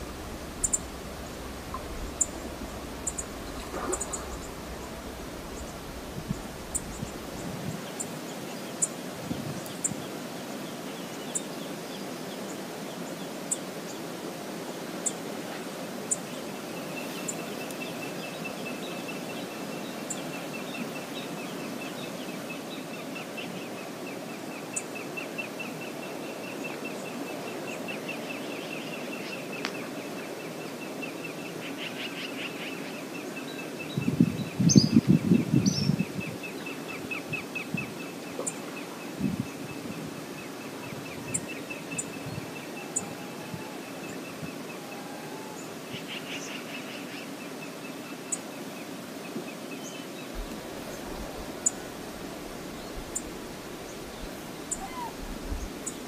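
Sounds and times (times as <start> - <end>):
low rumbling: 0.0 - 7.8
river rushing: 0.0 - 23.0, 47.0 - 56.0.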